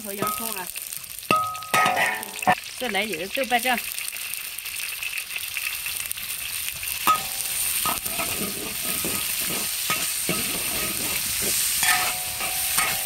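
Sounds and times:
paste sizzling in hot oil: 0:00.0 - 0:13.0
metal spatula scraping wok: 0:07.1 - 0:13.0.

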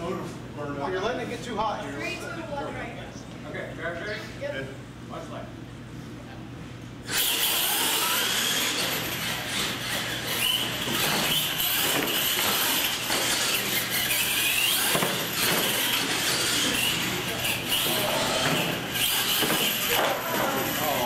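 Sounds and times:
electric toy truck motor whine: 0:07.1 - 0:21.0.

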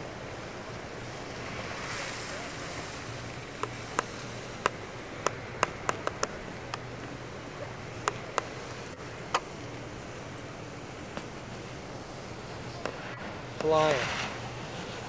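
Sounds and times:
rushing wind: 0:00.0 - 0:15.0
sharp clicks: 0:03.6 - 0:07.2.

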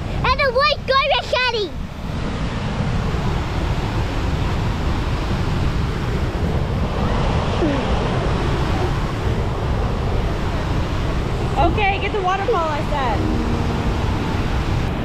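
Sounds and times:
waterfall rushing: 0:13.2 - 0:15.0.

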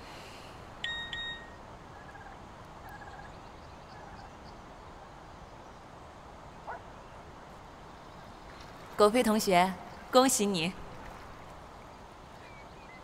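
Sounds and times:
mobile phone electronic beep: 0:00.8 - 0:01.6.

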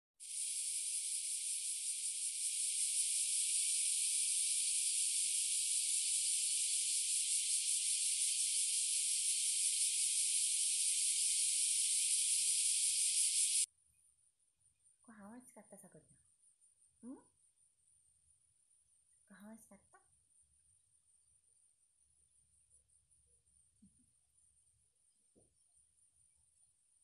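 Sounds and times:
cicadas droning: 0:00.2 - 0:13.7, 0:20.0 - 0:27.0.

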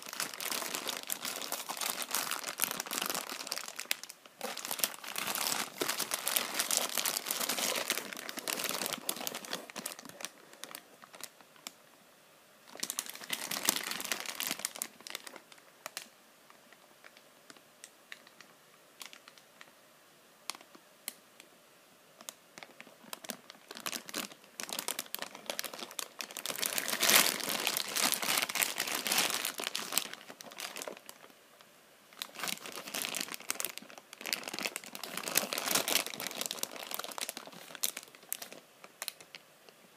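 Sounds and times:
plastic bags crinkling: 0:00.0 - 0:11.7, 0:12.7 - 0:16.1, 0:22.2 - 0:31.3, 0:32.1 - 0:39.4.

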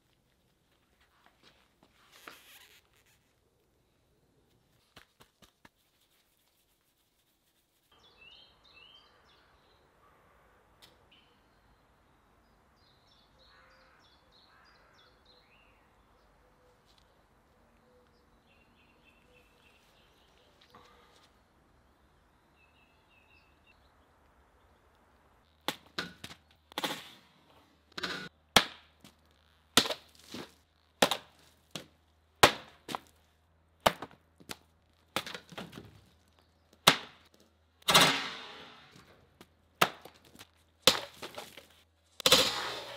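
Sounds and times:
steel whip sword strikes: 0:42.2 - 0:42.9.

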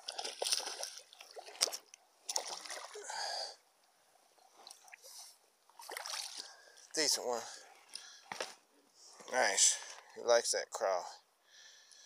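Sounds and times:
water splashing and sloshing: 0:00.0 - 0:08.6.

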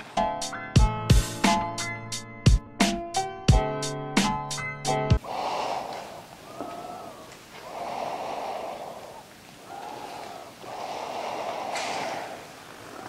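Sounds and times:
person breathing close to microphone: 0:05.2 - 0:13.0.

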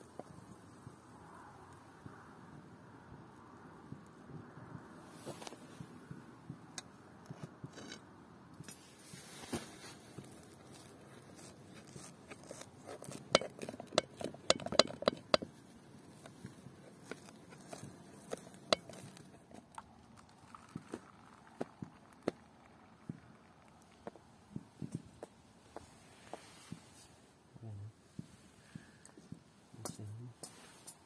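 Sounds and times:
knife cutting crisp pastry: 0:11.3 - 0:15.3.

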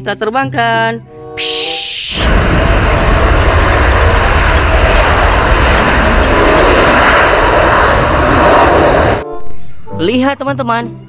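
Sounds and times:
jet airliner taking off: 0:01.4 - 0:09.3.

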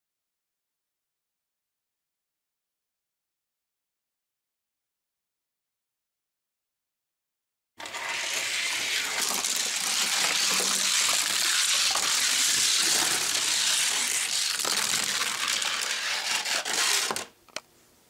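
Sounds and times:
toy car wheels rattling on track: 0:07.8 - 0:17.3.

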